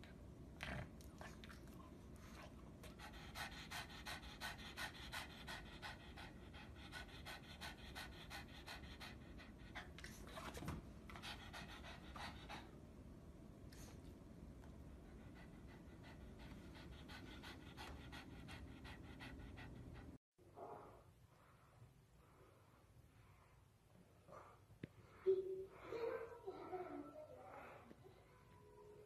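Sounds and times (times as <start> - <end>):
dog panting: 0.6 - 12.8, 14.7 - 20.2.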